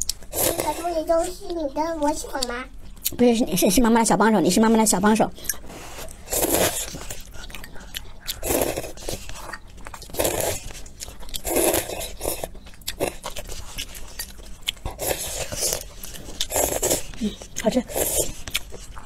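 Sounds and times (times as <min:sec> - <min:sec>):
noodles being slurped: 0:00.0 - 0:01.0, 0:05.7 - 0:19.0
chewing: 0:05.4 - 0:19.0.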